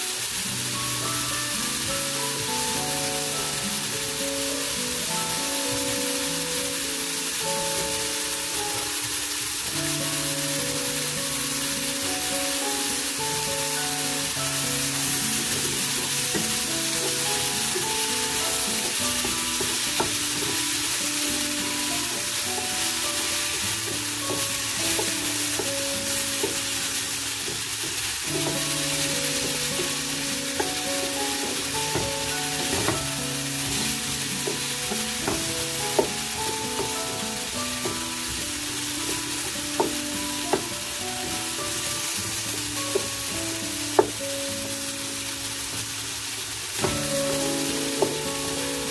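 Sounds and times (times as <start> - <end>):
vegetables sizzling in a pan: 0.0 - 48.9
wooden spatula knocking on pan: 12.6 - 41.9, 42.6 - 44.2, 46.8 - 48.9.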